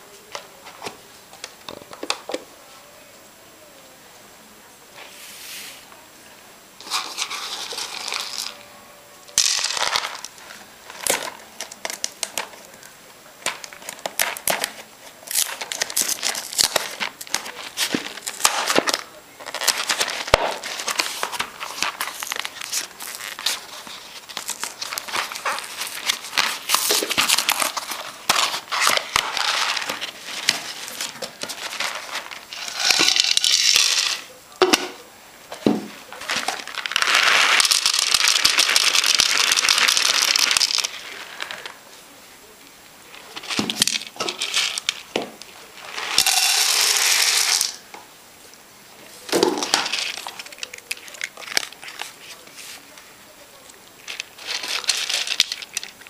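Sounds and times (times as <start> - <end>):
dry kibble pouring into bowl: 6.8 - 8.6, 9.4 - 11.4, 15.2 - 34.3, 36.1 - 41.8, 45.8 - 47.8, 54.0 - 55.9.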